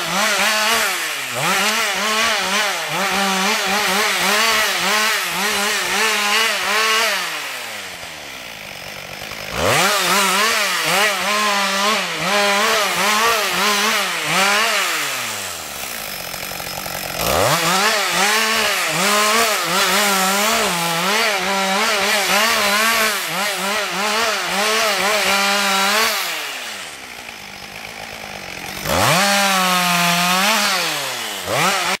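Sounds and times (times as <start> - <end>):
chainsaw revving and idling: 0.0 - 32.0.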